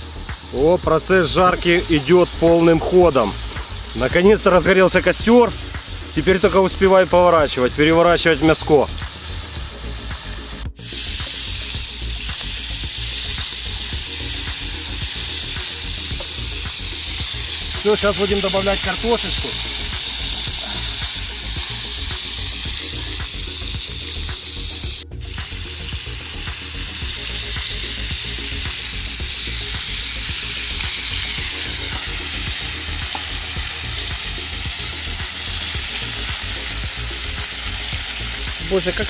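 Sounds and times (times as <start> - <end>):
food sizzling in hot fat: 0.0 - 39.0.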